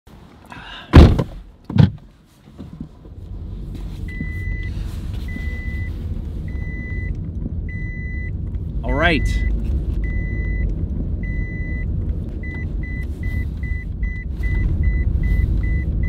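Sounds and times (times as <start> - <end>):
car door shutting: 0.9 - 3.0
seat belt warning chime: 8.9 - 11.8.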